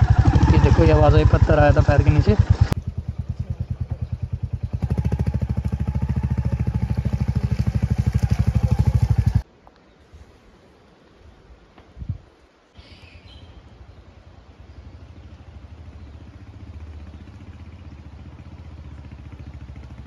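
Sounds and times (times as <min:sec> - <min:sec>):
motorcycle engine running: 0:00.0 - 0:09.4, 0:14.6 - 0:20.0.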